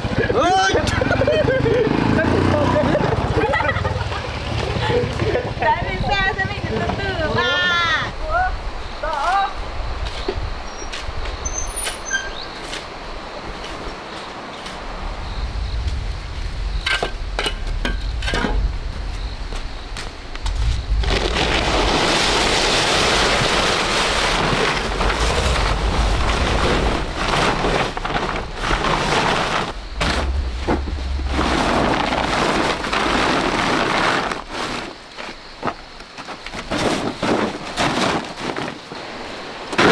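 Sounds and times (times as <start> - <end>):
plastic tarpaulins crinkling: 20.5 - 39.9.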